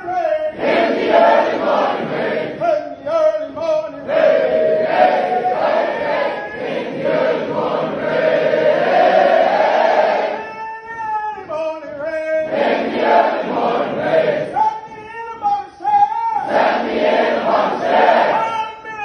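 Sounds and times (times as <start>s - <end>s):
soldiers chanting together: 0.5s - 2.6s, 4.0s - 10.4s, 12.5s - 14.5s, 16.4s - 18.5s.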